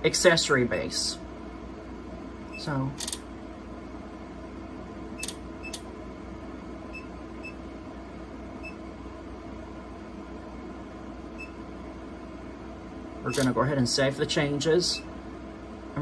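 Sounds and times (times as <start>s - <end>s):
keypad beeps: 5.2s - 5.8s, 11.4s - 11.6s.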